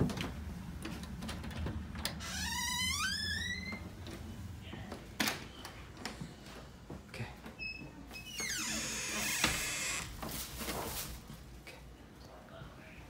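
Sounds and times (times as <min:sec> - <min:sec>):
wooden door creaking open: 0:01.2 - 0:04.1, 0:07.6 - 0:10.3.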